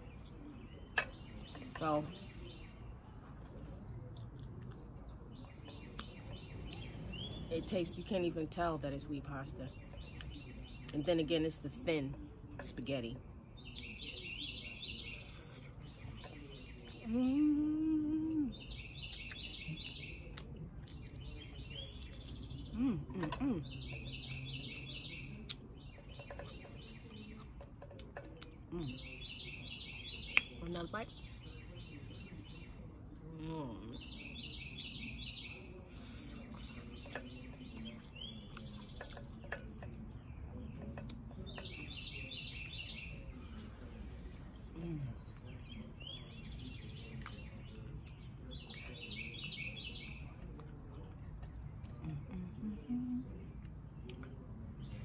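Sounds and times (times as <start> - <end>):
songbirds chirping: 0.0 - 55.0
woman humming while chewing: 17.0 - 18.6, 52.0 - 53.3.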